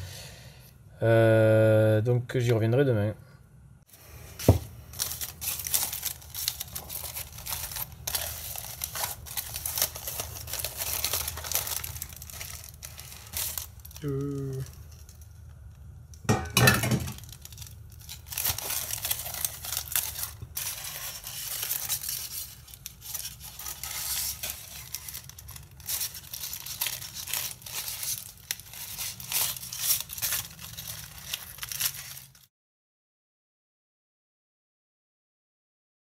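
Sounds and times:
aluminium foil crinkling and tearing: 4.0 - 32.5.

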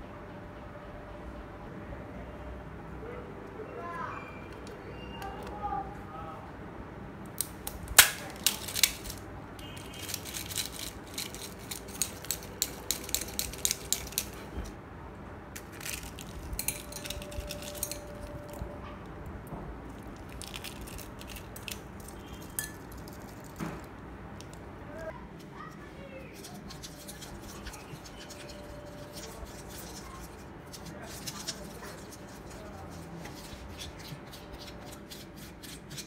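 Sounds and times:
eggshell cracking: 7.3 - 14.7, 15.6 - 18.6, 19.9 - 24.6
shell pieces clicking on glass: 7.4 - 14.7, 15.6 - 18.6, 20.0 - 23.8.

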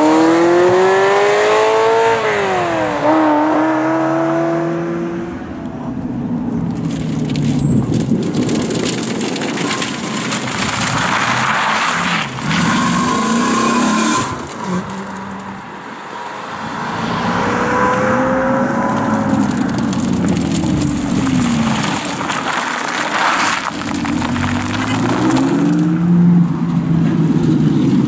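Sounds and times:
car engine accelerating: 10.6 - 28.0
second car engine revving: 16.2 - 21.6.

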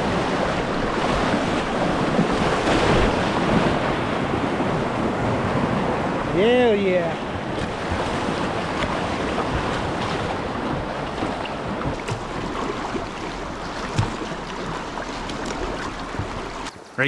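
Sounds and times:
river water rushing: 0.0 - 17.0
wind on microphone: 7.2 - 16.7
light knocks on boat: 13.8 - 14.6, 15.3 - 16.7.

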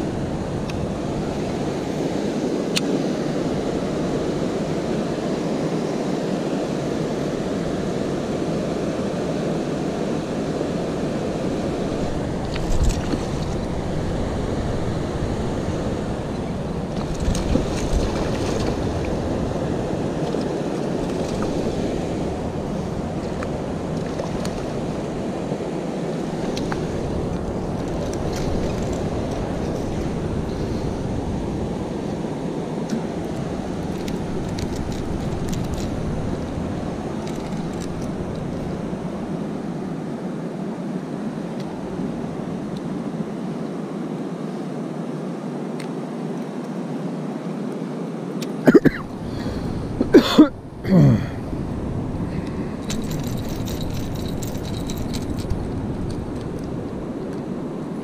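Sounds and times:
wind buffeting microphone: 0.0 - 39.6.

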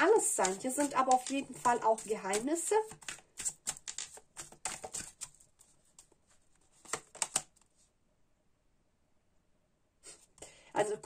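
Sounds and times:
cards being shuffled: 0.0 - 7.7.

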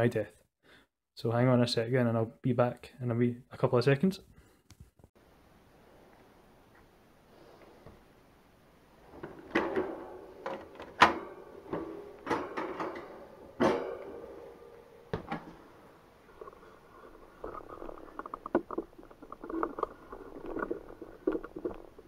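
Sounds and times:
wire cage knocking and clattering: 9.2 - 15.7.

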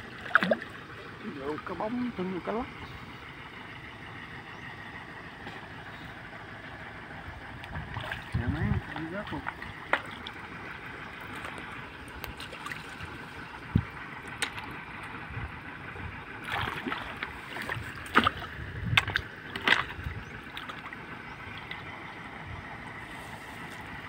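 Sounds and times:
water sloshing and splashing: 0.0 - 3.4, 6.6 - 24.0.

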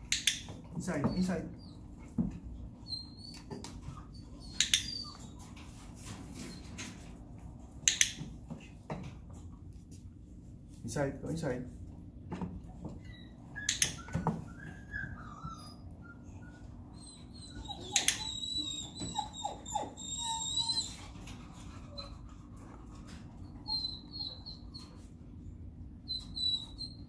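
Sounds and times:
sharp clicks: 0.1 - 0.4, 7.9 - 8.2
dog whining: 2.6 - 5.6, 12.9 - 22.3, 23.4 - 27.0.

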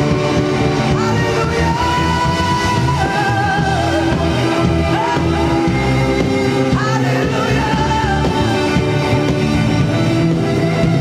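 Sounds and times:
rock band playing: 0.0 - 11.0
person singing: 0.8 - 9.3.

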